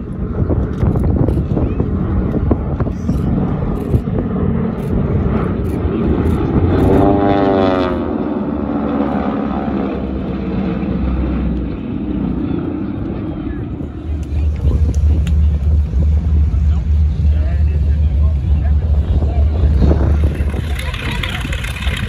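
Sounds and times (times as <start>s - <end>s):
propeller planes flying overhead: 0.0s - 22.0s.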